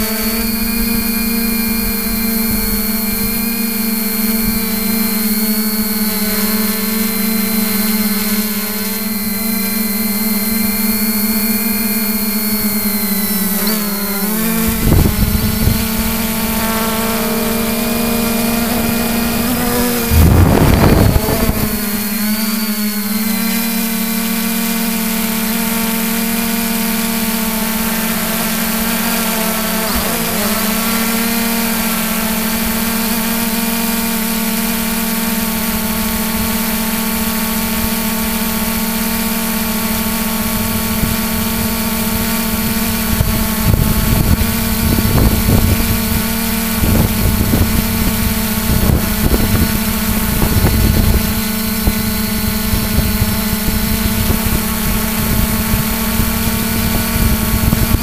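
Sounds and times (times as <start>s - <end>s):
drone propellers humming: 0.0s - 58.0s
rushing noise: 19.9s - 22.0s.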